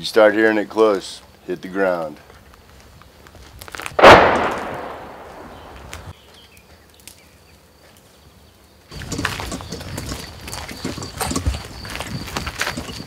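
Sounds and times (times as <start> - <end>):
footsteps on rubble and gravel: 2.2 - 6.9, 8.9 - 13.0
artillery blast with rumble: 4.0 - 6.0.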